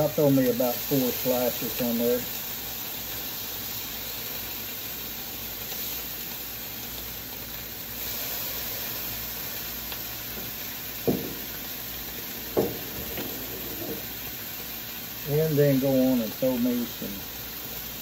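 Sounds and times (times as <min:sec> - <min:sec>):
bacon sizzling on a griddle: 0:00.0 - 0:18.0
short knocks: 0:10.3 - 0:11.6, 0:12.2 - 0:14.1.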